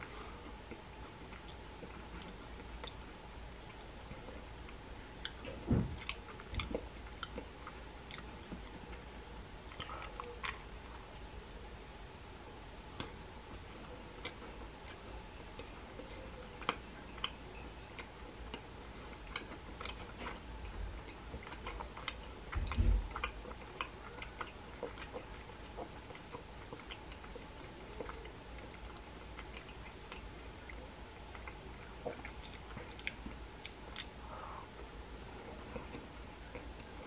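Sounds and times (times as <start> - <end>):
faint steady hum: 0.0 - 37.0
chewing crunches: 0.4 - 9.0, 18.0 - 34.2.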